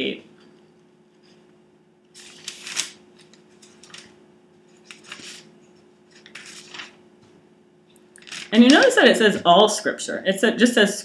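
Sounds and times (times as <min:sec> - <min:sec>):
thin pages rustling: 0:02.2 - 0:07.0, 0:08.2 - 0:08.9.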